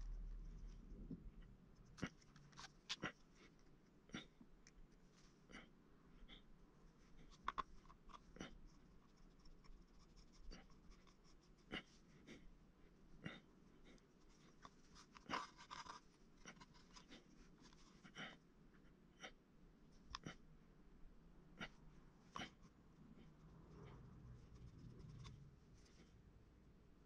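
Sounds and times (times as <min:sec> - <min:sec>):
craft knife scraping clay: 0:13.8 - 0:18.1.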